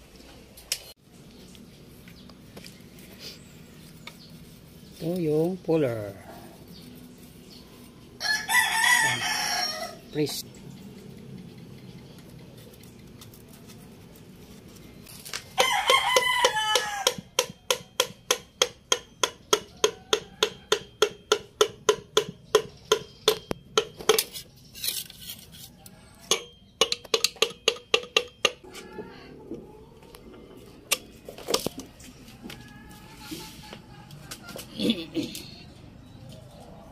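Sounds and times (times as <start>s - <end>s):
rooster crowing: 8.2s - 10.1s, 15.6s - 17.4s, 19.8s - 21.0s, 28.6s - 30.2s, 32.3s - 34.7s
ringing metallic taps: 16.4s - 24.3s, 26.2s - 28.7s.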